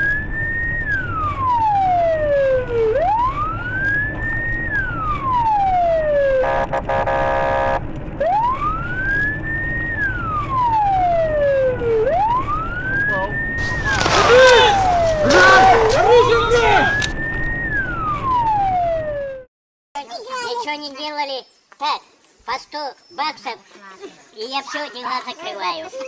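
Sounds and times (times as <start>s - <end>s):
police siren wailing: 0.0s - 7.0s, 8.2s - 19.5s
horn blast: 6.4s - 7.9s.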